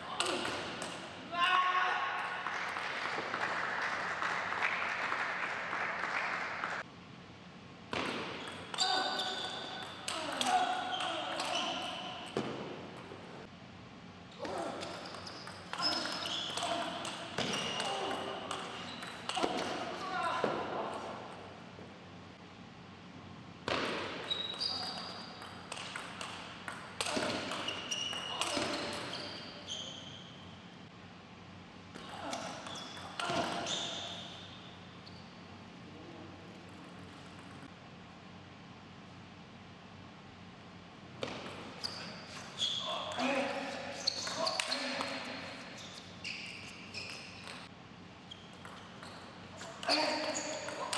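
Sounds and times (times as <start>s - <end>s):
applause: 2.4s - 6.8s
shoes squeaking on floor: 8.4s - 12.2s, 14.6s - 16.8s, 17.4s - 19.5s, 24.2s - 25.4s, 27.2s - 30.5s, 32.2s - 35.4s, 41.8s - 50.9s.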